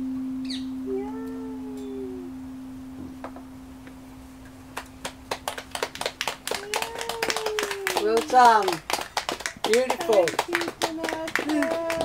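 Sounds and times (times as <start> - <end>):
held low note: 0.0 - 7.9
hand claps and applause: 4.7 - 12.0
person's voice: 9.7 - 12.0.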